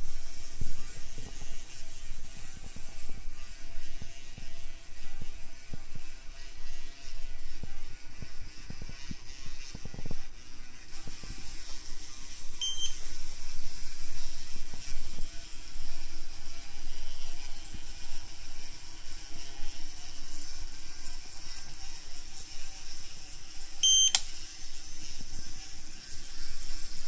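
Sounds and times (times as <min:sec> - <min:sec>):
short high electronic beep: 0:12.6 - 0:13.0, 0:23.8 - 0:24.2
sharp click: 0:24.1 - 0:24.4.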